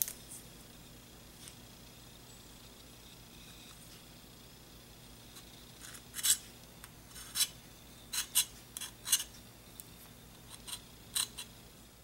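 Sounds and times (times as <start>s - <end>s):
knife blade scraping metal: 5.8s - 6.5s, 7.1s - 9.3s, 10.5s - 11.5s.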